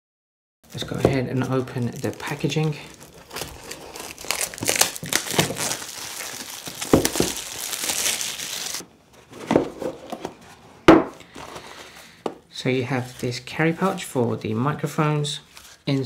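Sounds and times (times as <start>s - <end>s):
plastic shrink wrap crinkling: 0.7s - 8.8s, 15.4s - 16.0s.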